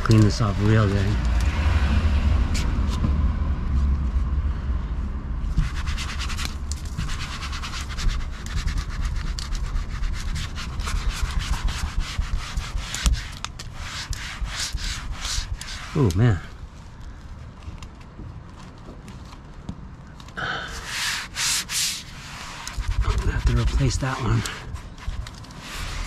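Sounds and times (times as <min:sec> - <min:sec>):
steady low rumble: 0:00.0 - 0:26.0
rag rubbing strokes: 0:05.5 - 0:16.6, 0:20.7 - 0:26.0.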